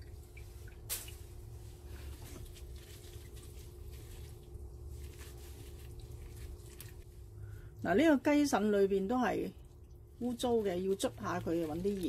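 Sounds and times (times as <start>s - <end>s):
wet squelching of raw meat: 0.0s - 7.4s, 9.5s - 12.0s
low steady hum: 0.0s - 12.0s.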